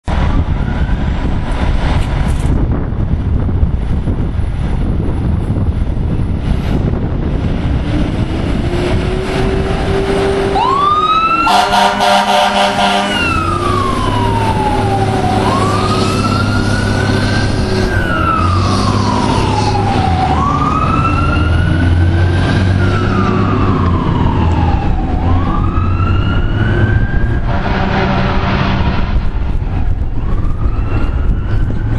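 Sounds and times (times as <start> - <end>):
diesel engine rumbling: 0.0 - 31.9
siren wailing: 8.4 - 31.9
air horn blast: 11.4 - 13.7, 27.4 - 29.4.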